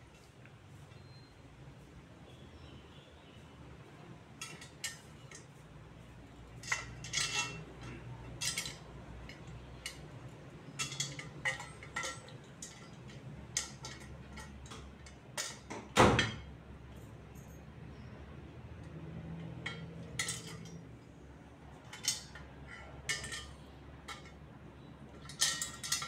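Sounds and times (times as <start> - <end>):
metal tubes clinking: 4.4 - 5.6, 6.5 - 16.5, 19.4 - 21.0, 21.7 - 26.0.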